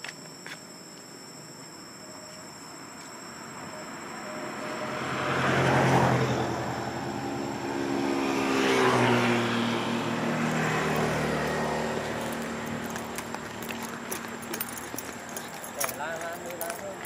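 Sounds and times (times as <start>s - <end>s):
vehicles passing by: 3.5s - 17.0s.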